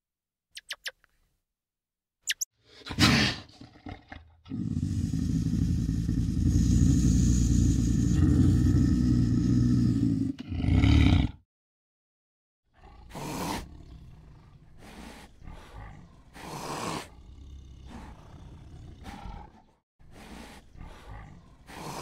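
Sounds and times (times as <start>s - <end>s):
big cat roaring: 3.0s - 11.4s, 12.8s - 19.8s.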